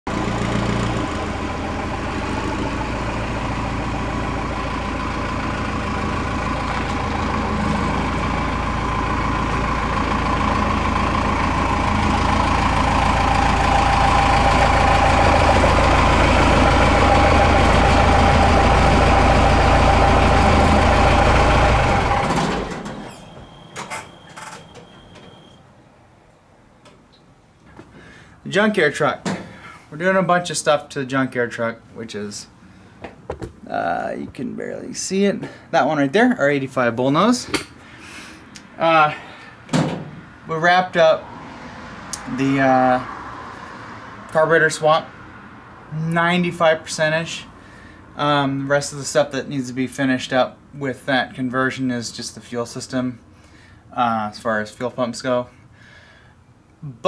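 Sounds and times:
diesel truck engine running: 0.1s - 25.6s
short beep: 23.0s - 25.6s.

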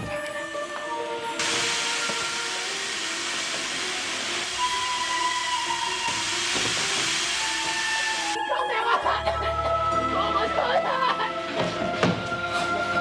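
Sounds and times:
gas hissing from a pipe: 0.9s - 8.5s.

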